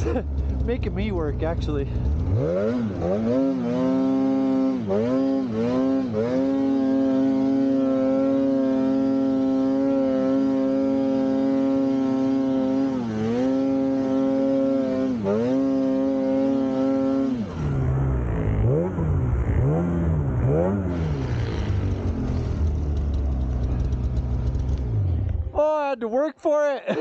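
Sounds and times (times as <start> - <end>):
snowmobile engine revving: 0.0 - 25.4.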